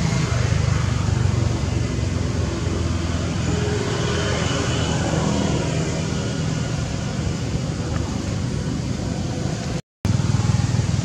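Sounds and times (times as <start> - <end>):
low rumbling background noise: 0.0 - 11.0.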